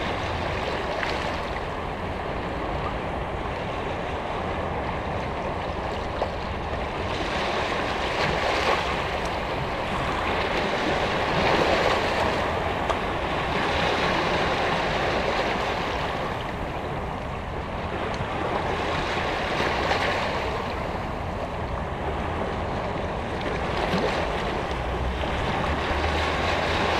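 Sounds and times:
waves washing over rocks: 0:00.0 - 0:26.9.

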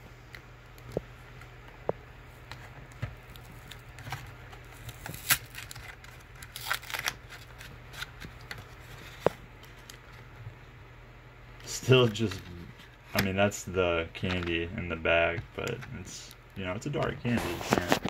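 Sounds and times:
cardboard box tearing open: 0:04.8 - 0:05.9, 0:06.5 - 0:07.4.

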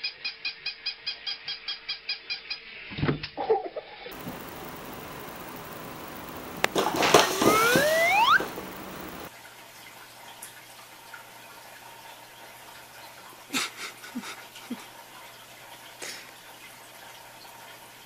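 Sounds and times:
faint hiss: 0:04.1 - 0:09.3
soft clicks: 0:04.1 - 0:09.3.

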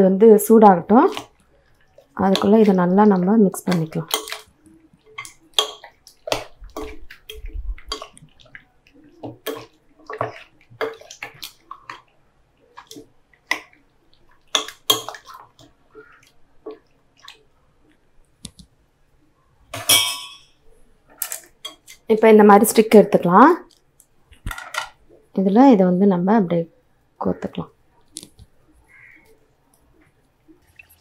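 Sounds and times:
spoon stirring thick marinade: 0:00.8 - 0:18.1.

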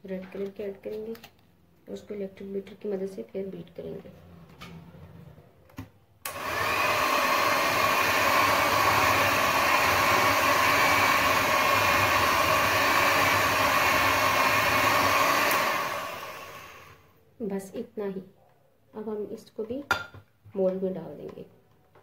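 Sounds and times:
electric hand mixer running: 0:06.3 - 0:17.0.

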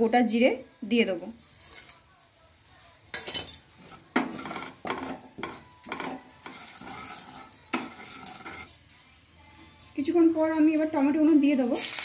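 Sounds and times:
spices sizzling in hot oil: 0:00.7 - 0:08.7, 0:11.6 - 0:12.0
wooden spatula scraping: 0:01.4 - 0:02.1, 0:03.9 - 0:08.7.

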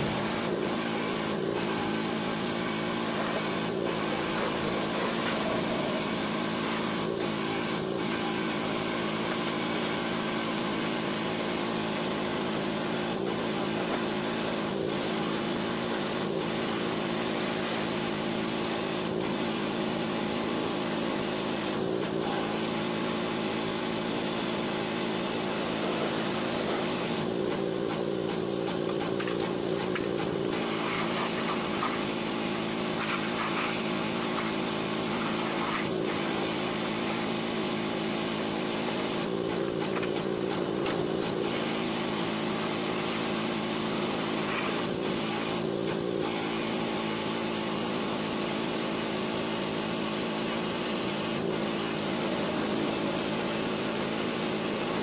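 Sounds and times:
water jet hissing: 0:00.0 - 0:07.7, 0:24.9 - 0:45.6
pressure washer motor running: 0:00.0 - 0:55.0.

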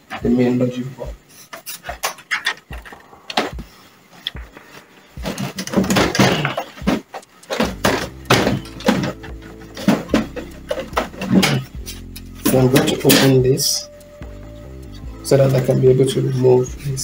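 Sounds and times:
printer casing rubbing and scraping: 0:01.3 - 0:03.6, 0:05.2 - 0:13.0.

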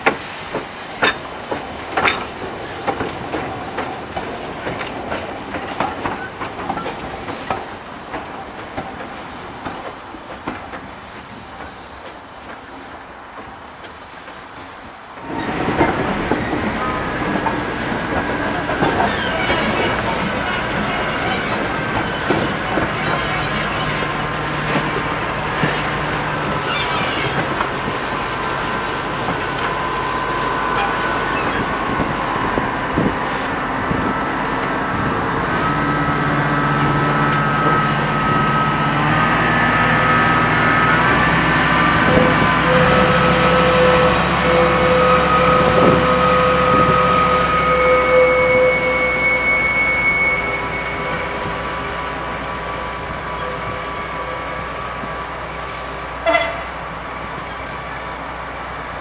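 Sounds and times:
train wheels clicking over rail joints: 0:00.0 - 0:38.5
thin wheel squeals: 0:18.8 - 0:27.6, 0:29.6 - 0:32.5, 0:42.1 - 0:52.0.

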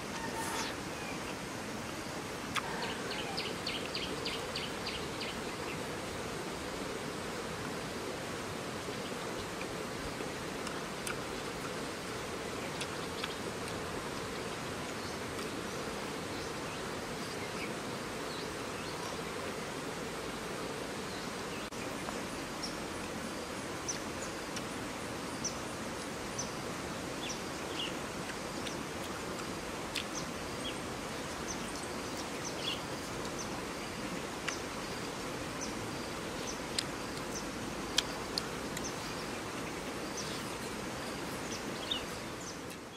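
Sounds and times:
insects droning: 0:00.0 - 0:42.9.

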